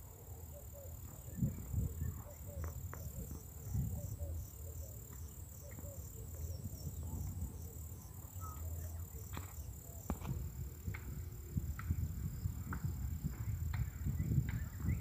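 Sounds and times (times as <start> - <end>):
insects trilling: 0.0 - 15.0
faint bird chirps: 0.2 - 10.1.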